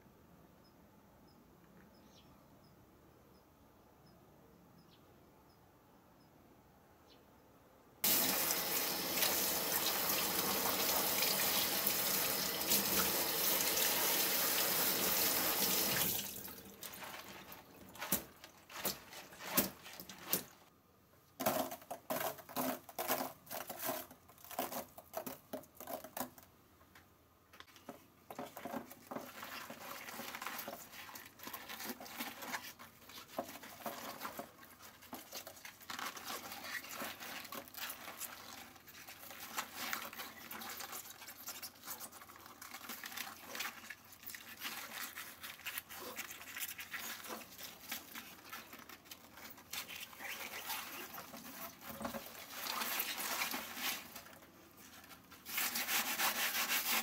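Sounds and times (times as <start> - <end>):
kitchen tap running: 8.0 - 17.0
salt pattering into plastic tub: 8.0 - 20.6
cabbage leaves rustling: 8.0 - 20.7, 28.4 - 57.0.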